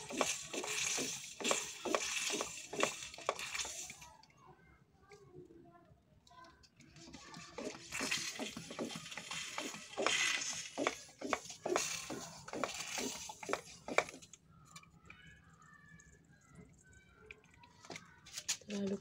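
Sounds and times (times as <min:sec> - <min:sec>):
rush of air from pump: 0:00.0 - 0:04.0, 0:07.3 - 0:14.2.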